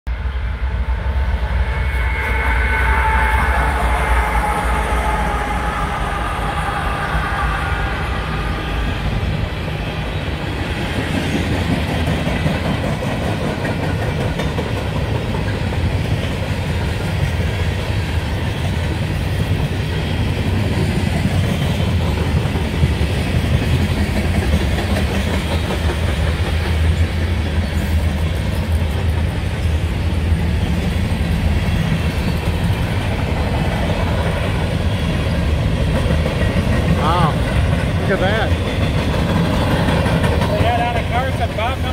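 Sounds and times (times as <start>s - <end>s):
freight train rolling past: 0.1s - 41.9s
clickety-clack over rail joints: 10.8s - 41.9s.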